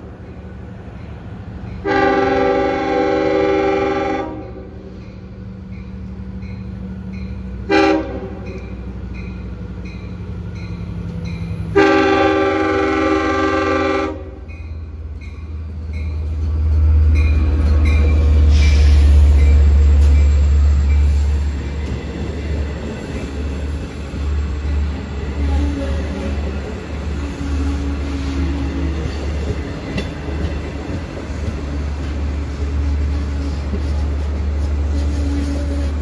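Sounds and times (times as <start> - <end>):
train rumbling: 0.0 - 36.0
train horn: 1.8 - 4.9, 7.6 - 8.6, 11.7 - 14.5, 25.4 - 26.5, 27.3 - 28.8, 34.9 - 36.0
crossing bell ringing: 4.4 - 11.8, 14.4 - 18.5.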